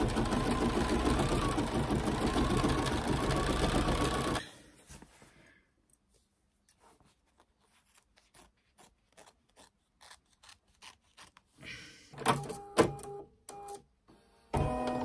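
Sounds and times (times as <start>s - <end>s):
embroidery machine motor whirring: 0.0s - 4.4s
scissors snipping fabric: 7.9s - 11.5s.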